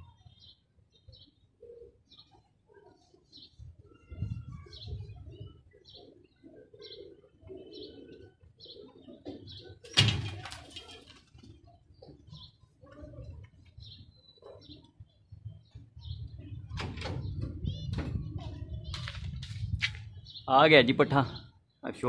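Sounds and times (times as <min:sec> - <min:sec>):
pigeons cooing: 0:00.0 - 0:20.4
pigeon wings flapping: 0:09.8 - 0:11.7.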